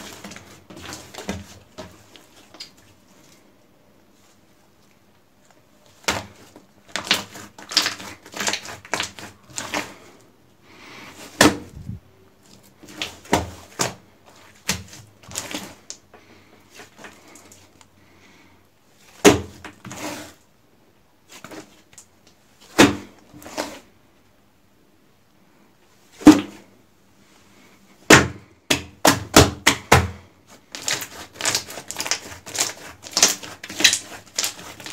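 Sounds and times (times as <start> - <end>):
slime squelching: 0.0 - 3.6, 4.3 - 17.9, 28.8 - 34.9
air pockets popping in slime: 30.7 - 34.9.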